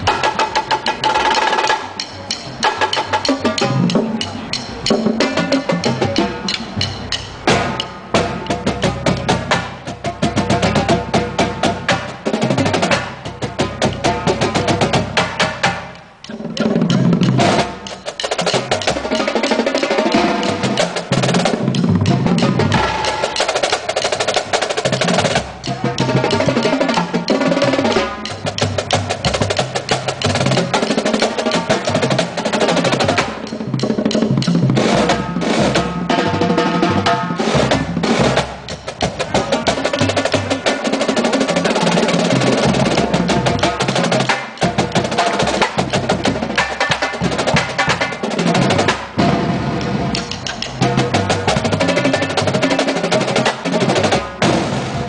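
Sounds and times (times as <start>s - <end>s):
marching snare drums: 0.0s - 55.0s.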